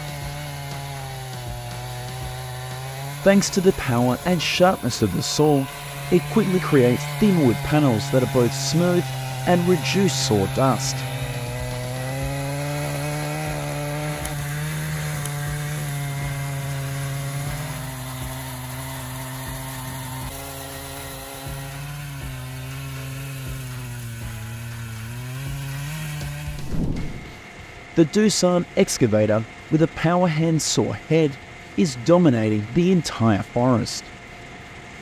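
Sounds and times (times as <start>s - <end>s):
chainsaw cutting under load: 0.0s - 28.0s.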